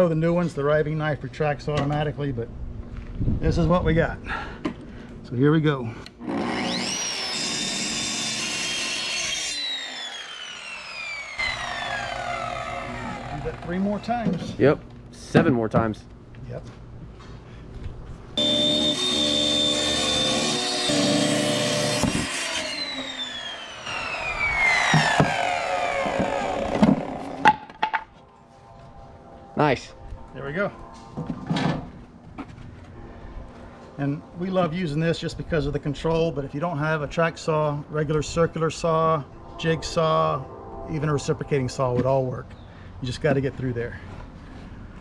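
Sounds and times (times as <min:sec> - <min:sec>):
circular saw motor whine: 0:06.4 - 0:14.4, 0:18.4 - 0:27.4.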